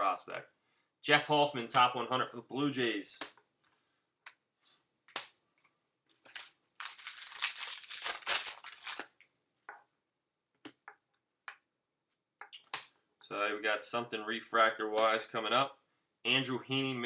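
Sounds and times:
foil wrapper tearing and crinkling: 6.2 - 9.2.

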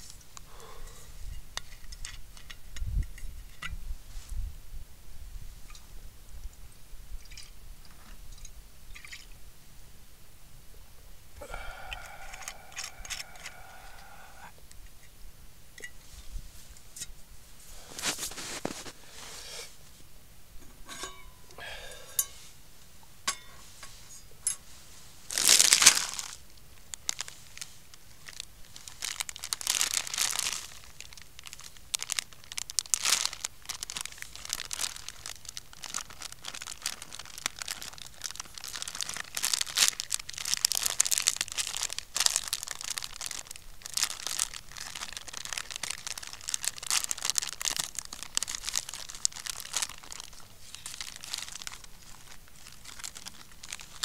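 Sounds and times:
plastic packaging crinkling: 11.6 - 14.4, 17.8 - 19.2, 25.3 - 54.0.

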